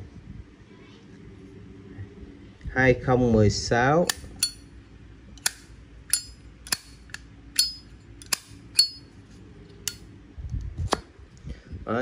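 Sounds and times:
lighter lid clicking open and shut: 0:05.4 - 0:09.0.

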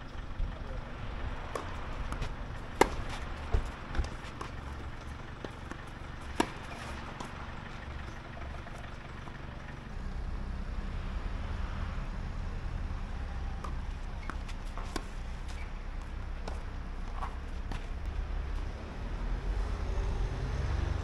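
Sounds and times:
steady low rumble: 0:00.0 - 0:09.9
tennis ball knock: 0:01.5 - 0:08.9.

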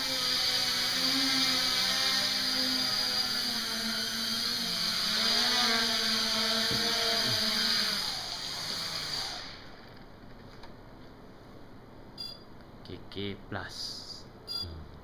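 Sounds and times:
drone motors whirring: 0:00.0 - 0:09.9.

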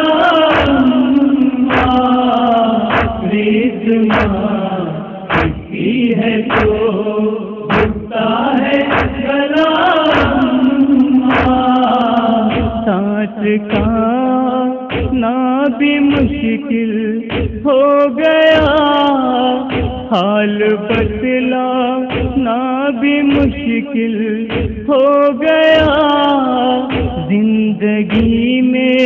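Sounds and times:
men chanting a lament: 0:00.0 - 0:29.0
solo man singing ornaments: 0:00.0 - 0:29.0
chest-beating thumps: 0:00.5 - 0:00.9, 0:01.7 - 0:02.2, 0:02.9 - 0:03.3, 0:04.1 - 0:04.5, 0:05.3 - 0:05.8, 0:06.5 - 0:06.9, 0:07.7 - 0:08.2, 0:08.9 - 0:09.3, 0:10.1 - 0:10.5, 0:11.3 - 0:11.8, 0:12.5 - 0:12.9, 0:13.7 - 0:14.1, 0:14.9 - 0:15.3, 0:17.3 - 0:17.7, 0:19.7 - 0:20.2, 0:22.1 - 0:22.5, 0:24.5 - 0:24.9, 0:26.9 - 0:27.3
steady drone: 0:00.5 - 0:06.9, 0:07.7 - 0:08.2.

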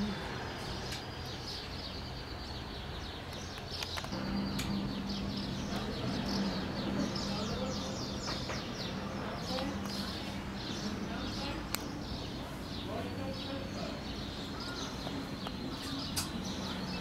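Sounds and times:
small birds chirping: 0:00.0 - 0:17.0
steady low hum: 0:04.1 - 0:17.0.

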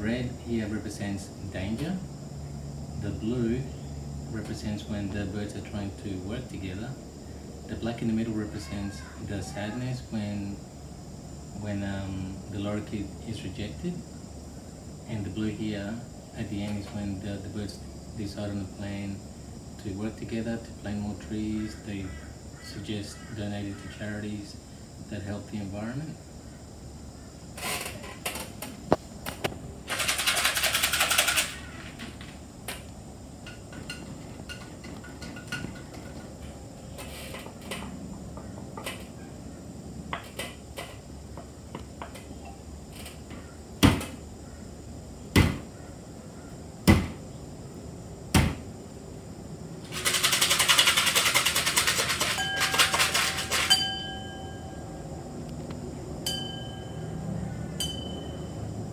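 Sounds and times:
sharp knocks: 0:43.8 - 0:44.2, 0:45.3 - 0:45.7, 0:46.8 - 0:47.2, 0:48.3 - 0:48.7
jar rattling: 0:49.9 - 0:54.6
glass struck and ringing: 0:52.4 - 0:55.0, 0:56.2 - 0:57.2, 0:57.8 - 0:58.7.

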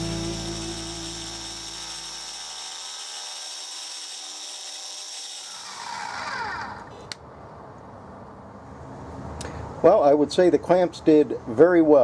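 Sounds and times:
mill spindle whine: 0:00.0 - 0:07.0.

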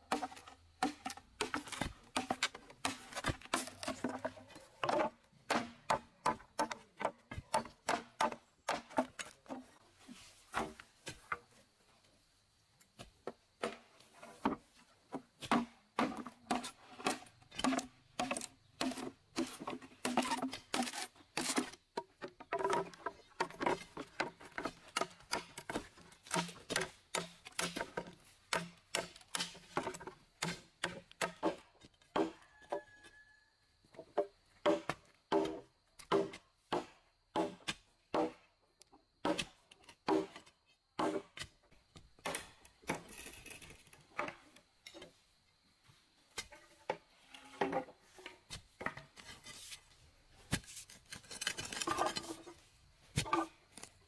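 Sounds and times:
machete chopping bamboo: 0:04.9 - 0:09.4, 0:15.5 - 0:21.8, 0:24.6 - 0:29.8.

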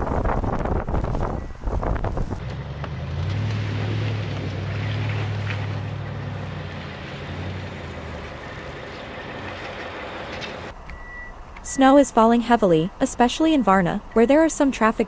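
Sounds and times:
steady rushing noise: 0:00.0 - 0:02.4
vehicle engine humming: 0:00.0 - 0:15.0.

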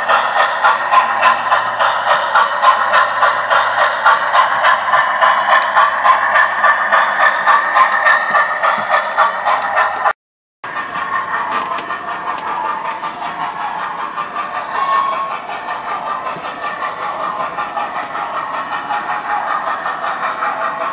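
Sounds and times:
steam-exhaust chuffs from speaker: 0:10.7 - 0:20.9.

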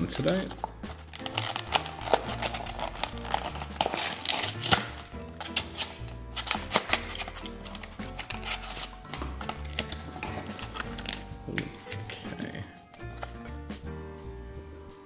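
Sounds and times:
plastic tray crinkling: 0:00.0 - 0:12.2
background music with bass line: 0:00.0 - 0:15.0
cardboard box tearing: 0:00.9 - 0:11.2.

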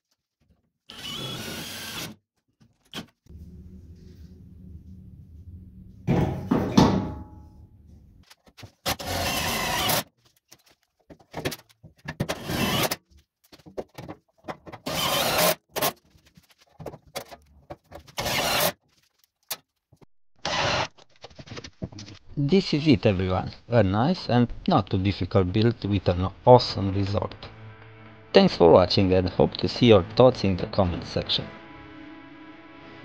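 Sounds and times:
power drill driving screws into metal: 0:00.9 - 0:02.2, 0:08.9 - 0:10.0, 0:12.3 - 0:13.0, 0:14.8 - 0:15.9, 0:18.2 - 0:18.8, 0:20.4 - 0:20.9
steady hum: 0:03.3 - 0:08.2.

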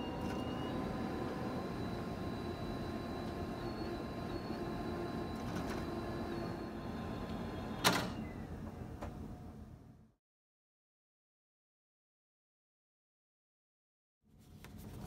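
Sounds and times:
printer motor whirring: 0:00.0 - 0:09.4.

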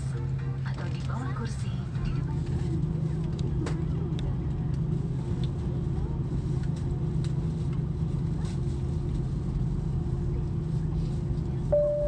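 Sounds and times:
airplane cabin drone: 0:00.0 - 0:12.0.

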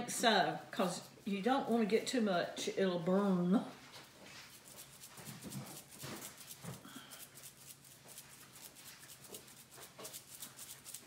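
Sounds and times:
seasoning shaker rattling: 0:04.0 - 0:11.0.

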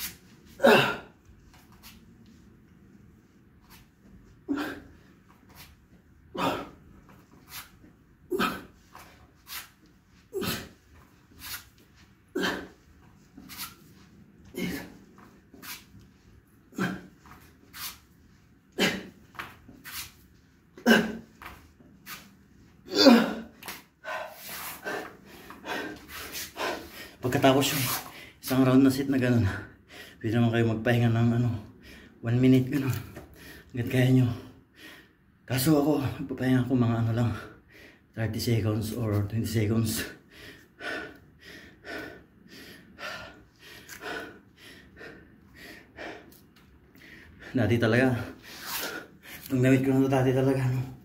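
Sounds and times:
man grunting and breathing hard: 0:06.3 - 0:06.8, 0:22.9 - 0:26.0
man breathing hard: 0:22.9 - 0:27.2, 0:40.1 - 0:47.6.

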